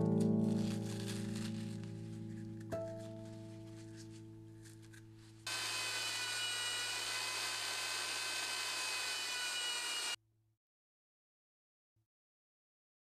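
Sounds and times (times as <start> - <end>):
belt sander motor whine: 5.5 - 10.2.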